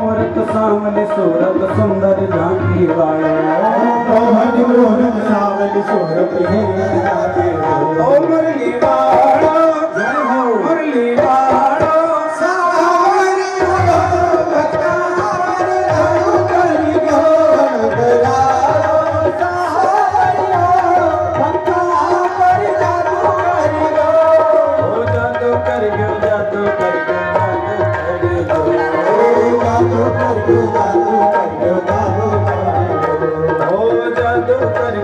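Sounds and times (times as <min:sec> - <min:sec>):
hand-drum beats: 0:00.0 - 0:35.0
person singing wavering melody: 0:14.2 - 0:35.0.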